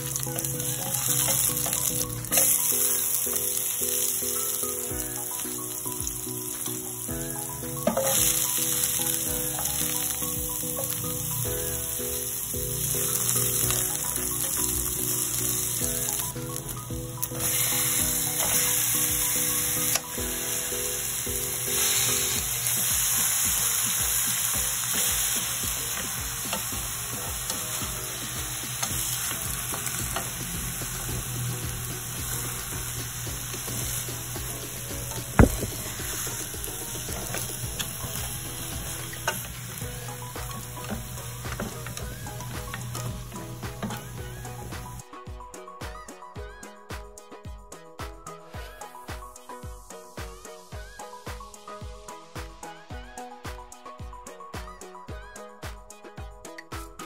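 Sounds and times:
ginger and onion sizzling: 0:00.0 - 0:45.1.

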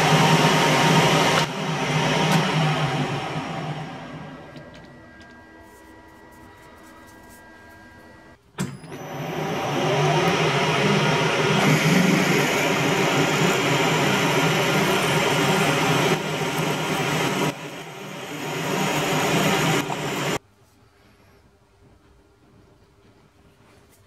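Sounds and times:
metal lathe drilling: 0:09.0 - 0:20.4.

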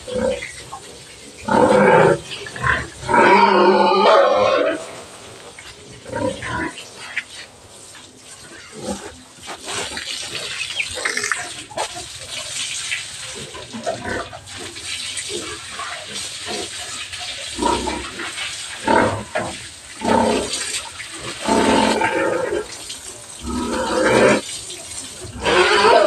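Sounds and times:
hose spraying water: 0:00.0 - 0:26.0
pigs squealing: 0:01.4 - 0:04.9, 0:08.5 - 0:12.2, 0:15.3 - 0:22.7, 0:23.4 - 0:24.4, 0:25.3 - 0:26.0.

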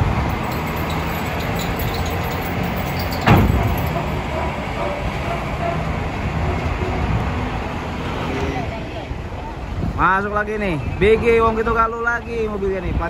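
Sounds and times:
diesel truck engine rumble: 0:00.0 - 0:08.0.

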